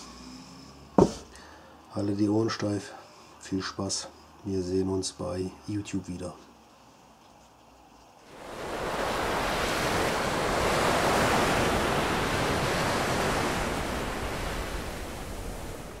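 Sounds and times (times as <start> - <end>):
steady rushing noise: 8.2 - 16.0.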